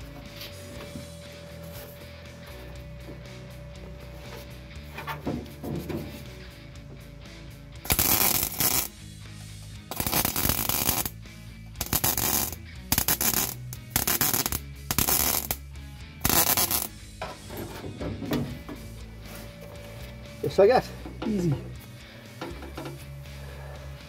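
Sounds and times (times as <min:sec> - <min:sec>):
background music: 0:00.0 - 0:24.0
welding arc crackling: 0:07.8 - 0:09.0, 0:09.9 - 0:11.2, 0:11.8 - 0:15.6, 0:16.2 - 0:17.0.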